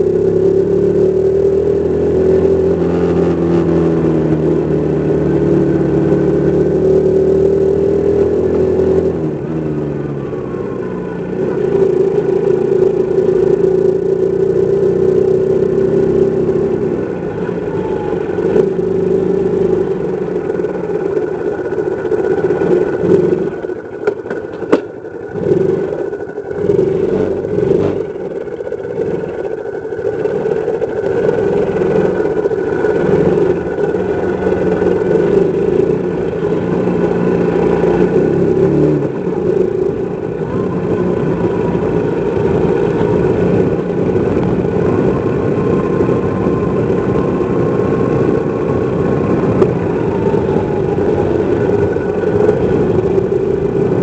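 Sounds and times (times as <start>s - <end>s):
vehicle engine running: 0.0s - 54.0s
knocks and rattles on dirt road: 11.6s - 54.0s.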